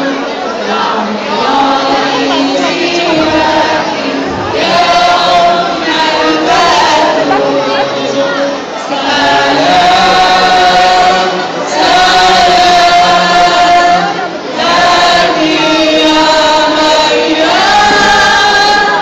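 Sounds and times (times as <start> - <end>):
crowd singing a hymn: 0.0 - 19.0.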